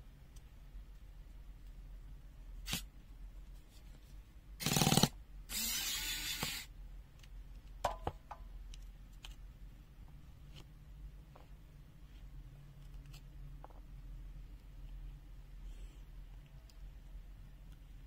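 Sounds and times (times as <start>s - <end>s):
electric screwdriver running: 4.6s - 6.7s.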